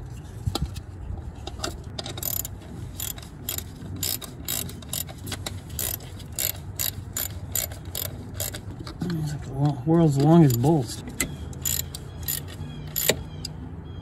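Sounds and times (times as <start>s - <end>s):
hand ratchet clicking: 2.1s - 8.6s, 11.6s - 13.2s.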